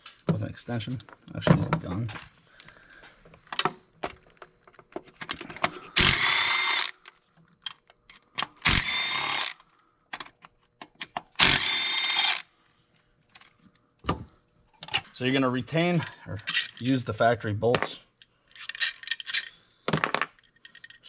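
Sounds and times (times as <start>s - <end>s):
clicks and knocks of parts: 1.0s - 12.4s, 15.9s - 17.0s, 17.7s - 21.0s
power drill whirring: 5.9s - 7.0s, 8.6s - 9.6s, 11.4s - 12.5s.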